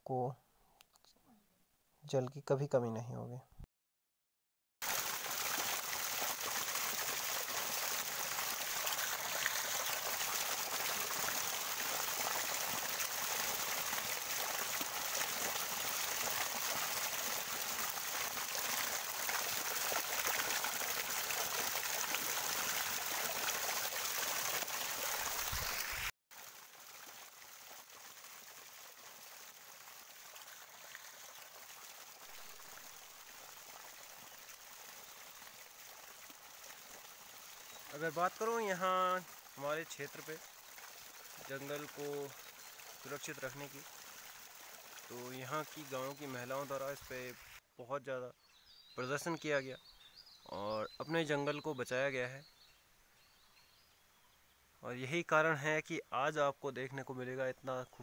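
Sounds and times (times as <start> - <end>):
waterfall splashing over rocks: 4.8 - 47.6
faint steady hiss: 45.0 - 58.0.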